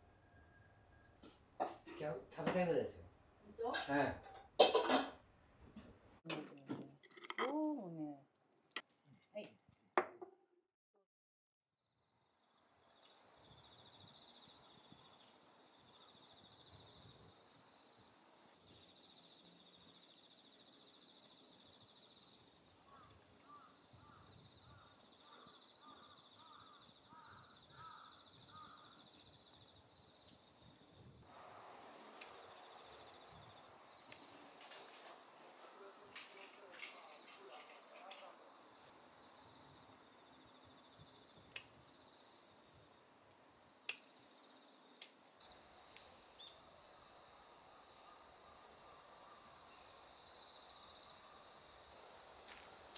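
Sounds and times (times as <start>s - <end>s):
crickets and insects chirring: 12.0s - 52.9s.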